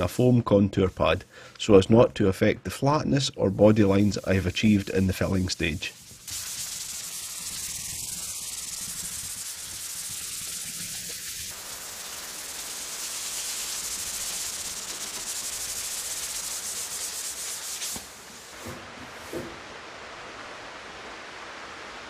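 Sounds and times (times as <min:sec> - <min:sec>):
sandpaper scratching over filler: 0:00.8 - 0:01.2, 0:03.4 - 0:19.5.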